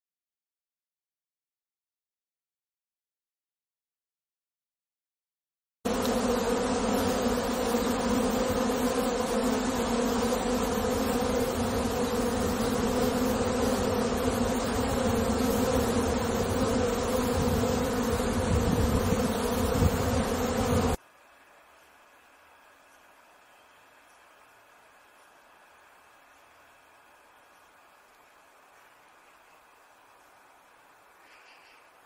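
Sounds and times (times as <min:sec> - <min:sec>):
honey bees buzzing: 0:05.9 - 0:32.0.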